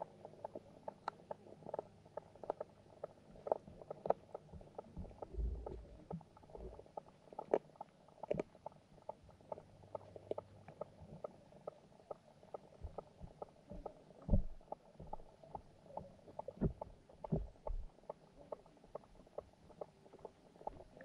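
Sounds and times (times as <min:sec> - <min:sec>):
steady low hum: 0:00.0 - 0:07.6, 0:08.3 - 0:21.0
muffled low rumble: 0:05.0 - 0:06.8
underwater clicks and pops: 0:08.2 - 0:08.6, 0:12.1 - 0:17.9.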